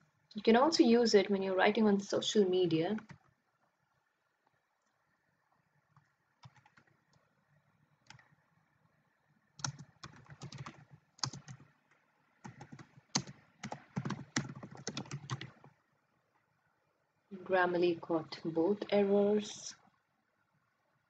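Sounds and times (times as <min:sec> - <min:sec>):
typing on computer keyboard: 0:03.0 - 0:03.3, 0:06.0 - 0:07.2, 0:08.0 - 0:08.3, 0:09.6 - 0:11.7, 0:12.4 - 0:15.7.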